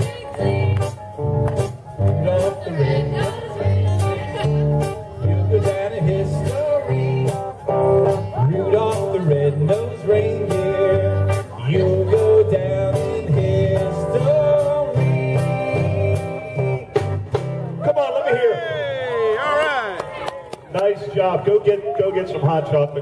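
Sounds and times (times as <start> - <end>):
steady drum beat: 0.0 - 17.8
bass line: 0.0 - 18.0
person singing: 2.0 - 17.2.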